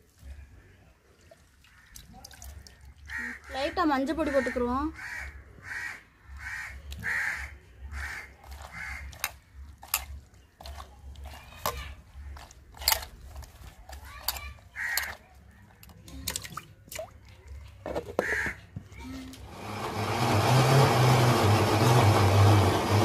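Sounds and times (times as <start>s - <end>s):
wet squelching of kneading: 0.0s - 4.6s, 6.3s - 19.4s
crows cawing: 3.0s - 3.6s, 4.2s - 9.2s, 14.7s - 15.2s, 18.2s - 18.6s.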